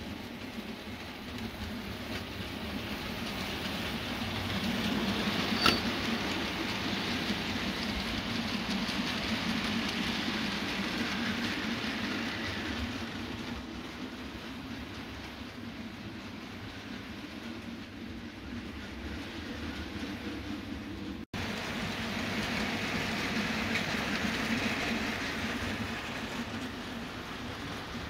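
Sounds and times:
model train wheels rumbling on rail: 0.0s - 28.0s.

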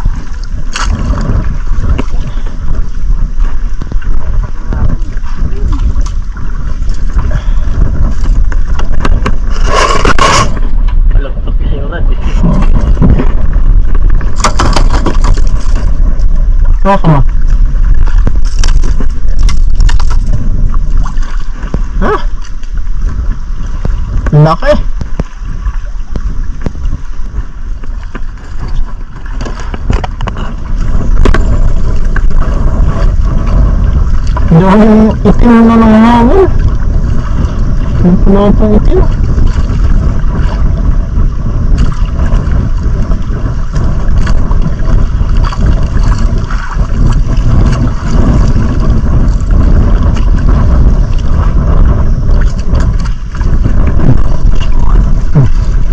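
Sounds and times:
wind buffeting microphone: 0.0s - 55.9s
rustling scrape on camera: 9.3s - 10.8s.

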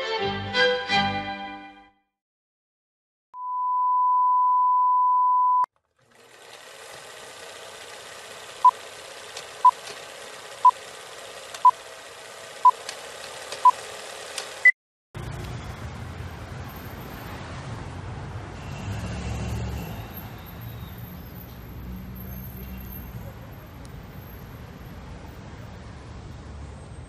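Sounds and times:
short countdown beeps: 3.4s - 5.7s
street traffic: 6.0s - 27.0s.

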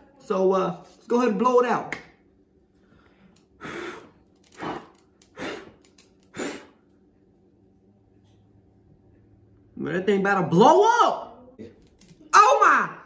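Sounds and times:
person blowing at candle: 3.6s - 6.8s.

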